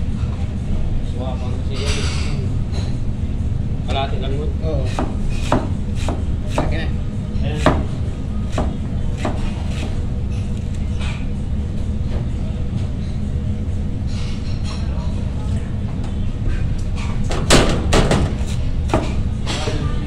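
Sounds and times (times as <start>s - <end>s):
steady low hum: 0.0s - 20.0s
knife chopping cabbage on board: 4.9s - 6.8s, 7.5s - 10.0s.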